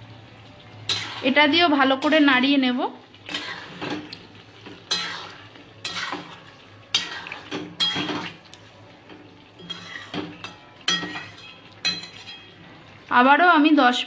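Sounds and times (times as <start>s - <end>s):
metal spatula scraping pan: 0.9s - 1.4s, 3.3s - 8.4s, 9.6s - 12.6s.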